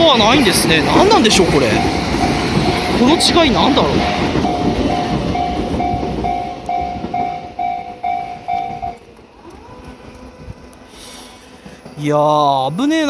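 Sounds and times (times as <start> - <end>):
train rumbling past: 0.0 - 13.0
level crossing bell dinging: 4.4 - 9.0.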